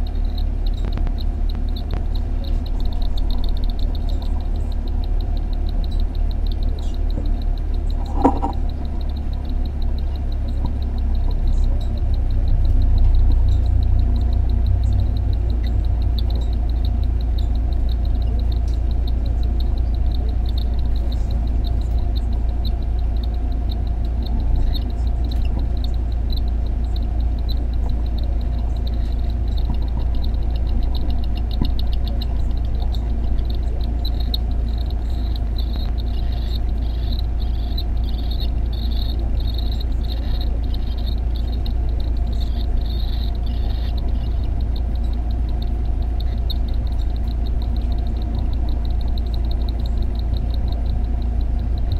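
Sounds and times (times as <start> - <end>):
steady low hum: 0.0 - 51.9
cockatiel chicks begging calls: 15.1 - 51.6.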